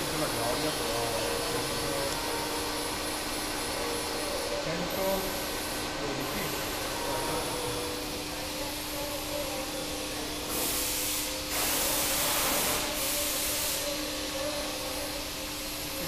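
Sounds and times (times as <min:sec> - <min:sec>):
workshop hum: 0:00.0 - 0:16.0
loud hissing bursts: 0:09.6 - 0:16.0.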